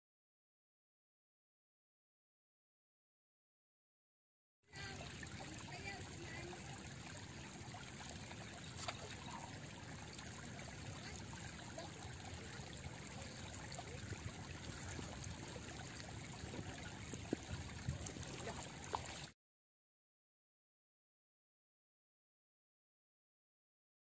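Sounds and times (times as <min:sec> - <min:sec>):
river water running over pebbles: 0:04.7 - 0:19.3.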